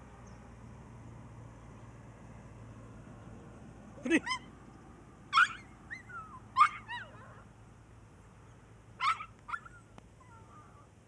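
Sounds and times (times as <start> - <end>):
dog yelping: 4.0 - 4.5, 5.3 - 7.5, 9.0 - 10.9.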